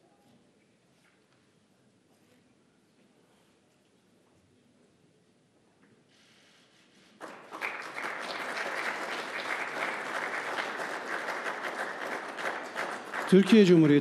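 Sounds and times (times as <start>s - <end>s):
audience applauding: 7.2s - 14.0s.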